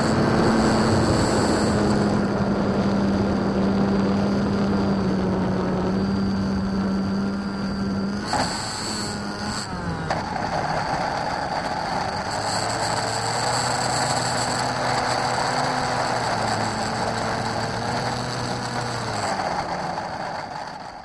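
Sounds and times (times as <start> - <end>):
model plane wheels rattling on asphalt: 0.0 - 2.4, 8.2 - 21.0
electric motor whine: 0.0 - 21.0.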